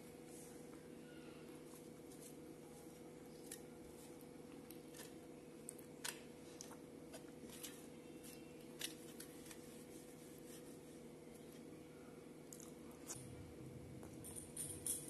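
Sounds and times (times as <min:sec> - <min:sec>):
chewing: 0:04.4 - 0:06.9, 0:12.4 - 0:13.2
low hum: 0:11.4 - 0:15.0.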